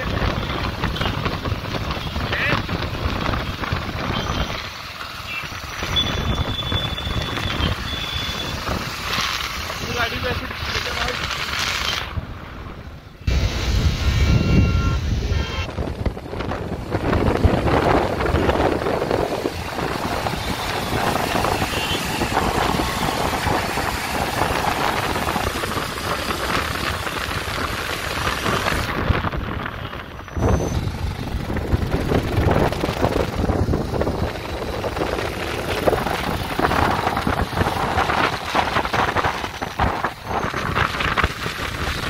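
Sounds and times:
wind rushing over microphone: 0:00.0 - 0:04.8, 0:05.4 - 0:42.0
traffic noise: 0:00.0 - 0:42.0
motorcycle engine: 0:13.3 - 0:42.0.

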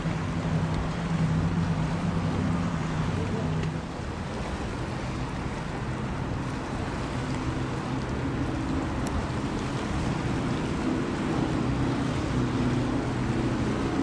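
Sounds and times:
boat engines humming: 0:00.0 - 0:14.0
water washing: 0:00.0 - 0:14.0
wind on microphone: 0:00.0 - 0:14.0.

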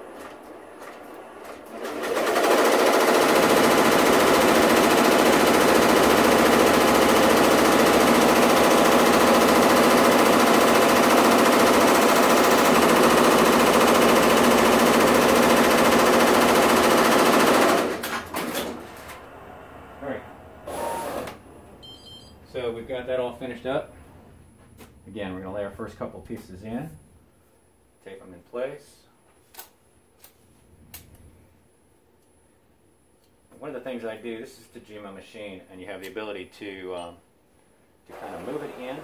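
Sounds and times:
embroidery machine running: 0:00.2 - 0:22.0.

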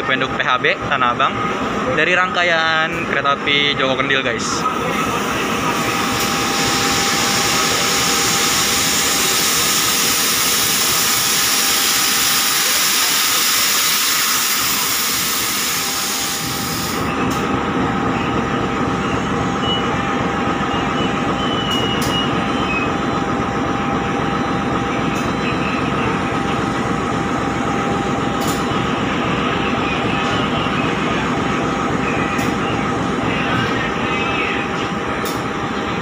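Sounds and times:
locomotive engine running: 0:04.6 - 0:36.0
compressed air hissing: 0:06.5 - 0:17.1.

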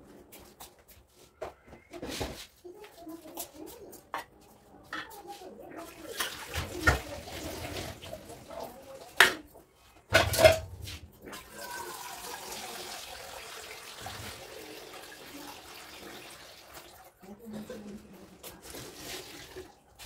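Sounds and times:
water running: 0:05.7 - 0:09.6, 0:10.2 - 0:20.0.

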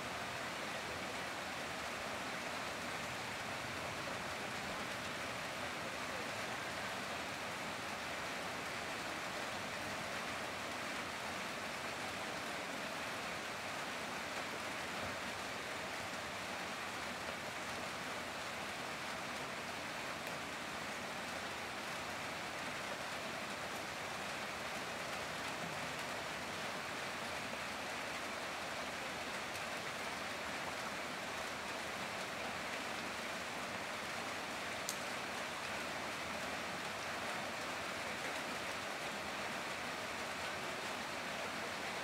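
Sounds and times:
heavy rain falling: 0:00.0 - 0:42.0.

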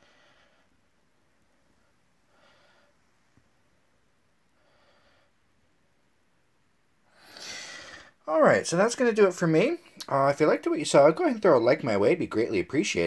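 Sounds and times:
person breathing: 0:00.0 - 0:03.2, 0:04.5 - 0:05.5, 0:07.1 - 0:08.2.

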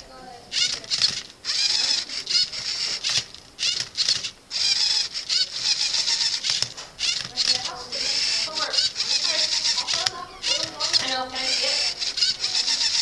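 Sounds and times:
servo motors whining: 0:00.0 - 0:13.0.

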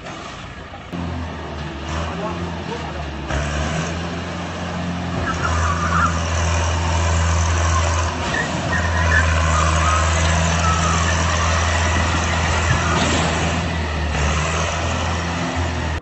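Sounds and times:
tractor diesel engine running: 0:00.0 - 0:16.0
high wavering squeals: 0:05.2 - 0:13.2.

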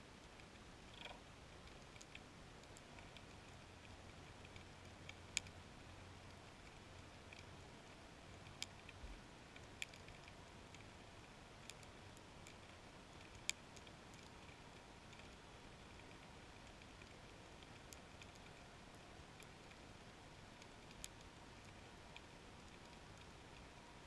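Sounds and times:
faint ticking: 0:00.2 - 0:24.0.

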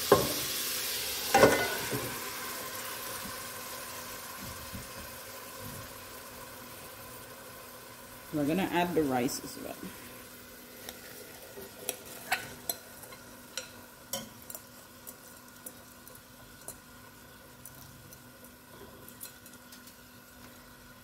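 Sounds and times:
onions sizzling in butter: 0:00.0 - 0:21.0.

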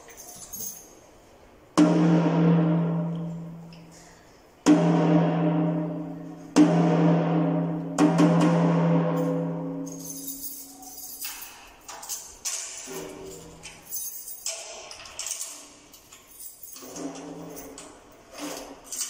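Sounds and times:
light handling rattle: 0:00.0 - 0:01.0
tom drum struck with drumstick: 0:06.6 - 0:09.6.

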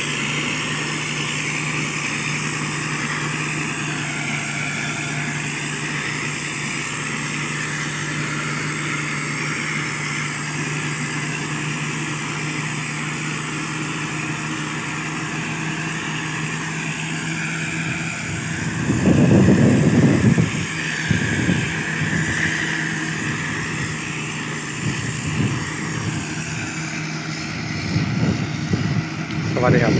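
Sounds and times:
diesel engine running: 0:00.0 - 0:29.9
wavering high whine: 0:00.0 - 0:29.9
loud rush of low noise: 0:16.4 - 0:29.9.

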